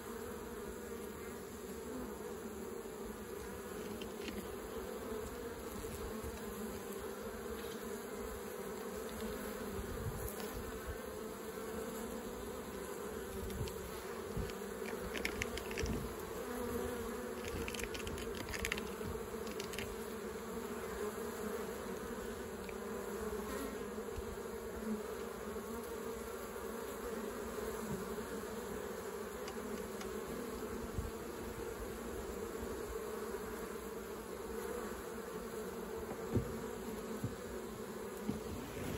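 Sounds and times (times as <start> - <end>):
honeybees buzzing: 0.0 - 38.9.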